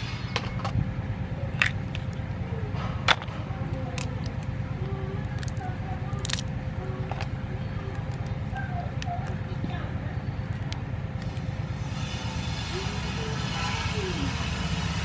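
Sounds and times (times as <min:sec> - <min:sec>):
low hum: 0:00.0 - 0:15.0
crab shells cracking: 0:01.5 - 0:02.3, 0:03.9 - 0:04.5, 0:05.2 - 0:07.3, 0:07.9 - 0:09.5.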